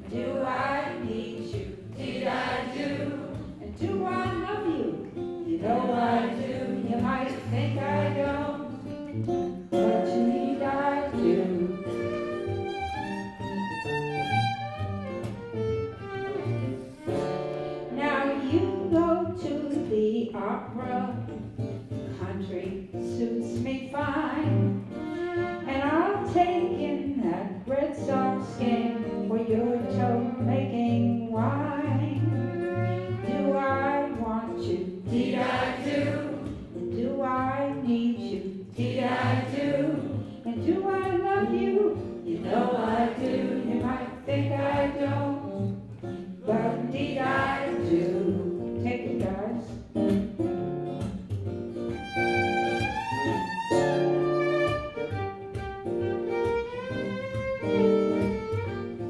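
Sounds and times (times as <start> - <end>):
woman singing: 0.0 - 9.0, 9.7 - 12.6, 17.9 - 21.4, 22.1 - 24.8, 25.5 - 45.8, 46.4 - 49.9
acoustic guitar: 0.0 - 59.0
violin melody: 9.7 - 18.0, 24.7 - 26.0, 28.4 - 30.5, 31.8 - 34.2, 51.8 - 59.0.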